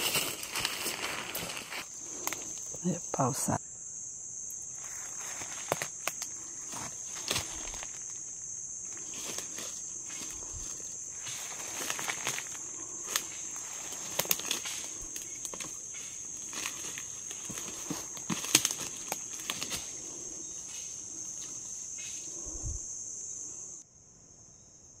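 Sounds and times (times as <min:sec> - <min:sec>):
footsteps through leaf litter: 0:00.0 - 0:01.9, 0:09.0 - 0:20.0
insects chorus: 0:00.0 - 0:25.0.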